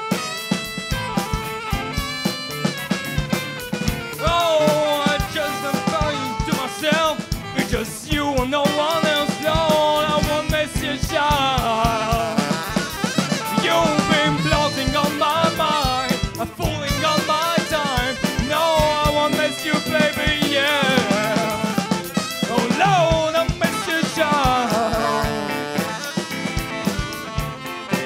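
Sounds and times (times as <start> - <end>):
lead melody bending in pitch: 0.0 - 6.7, 11.9 - 28.0
drum kit beat: 0.0 - 28.0
live band playing: 0.0 - 28.0.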